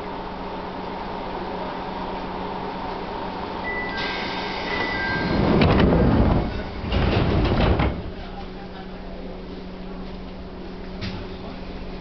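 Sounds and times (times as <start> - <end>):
stopped train hum: 0.0 - 12.0
train door hiss: 3.7 - 8.2
train doors sliding shut: 3.7 - 8.6.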